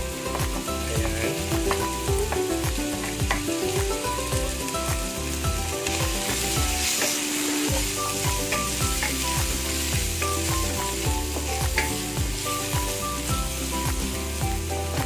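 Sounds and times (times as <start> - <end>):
background music with beat: 0.0 - 15.0
food sizzling in a wok: 0.0 - 15.0.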